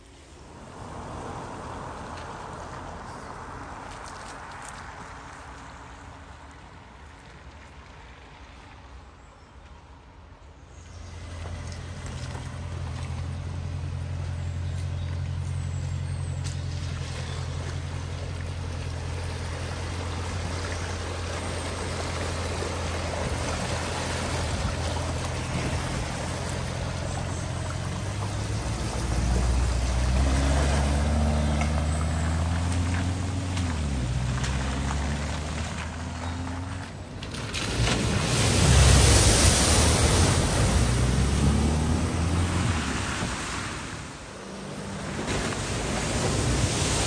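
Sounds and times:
car engine running low: 0:11.0 - 0:46.7
water rushing and splashing: 0:11.0 - 0:47.0.

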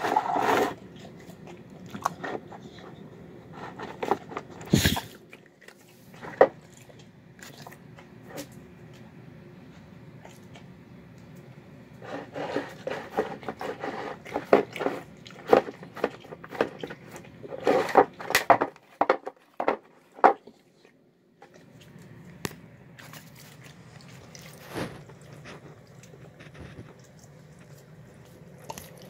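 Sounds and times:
dog chewing and smacking: 0:00.0 - 0:08.5, 0:10.1 - 0:11.4, 0:12.1 - 0:29.0.

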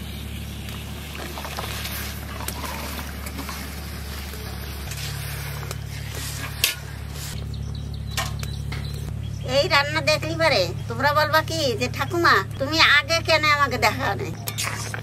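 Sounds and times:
water boiling and bubbling: 0:00.0 - 0:07.4.

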